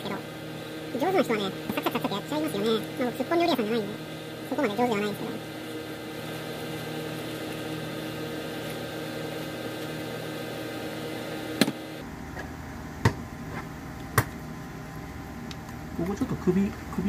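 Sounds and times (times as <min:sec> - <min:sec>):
kitchen machinery hum: 0:00.0 - 0:17.0.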